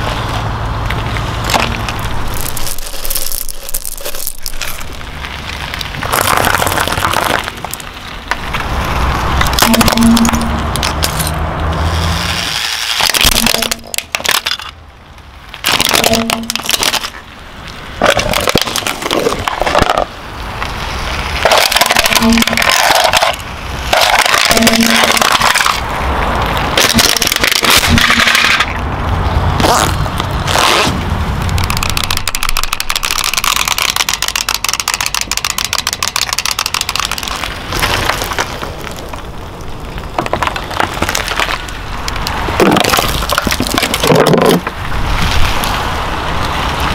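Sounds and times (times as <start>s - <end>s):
plastic toys cracking under tyre: 0.8s - 11.4s, 12.2s - 46.9s
rapid clicking: 31.4s - 38.0s.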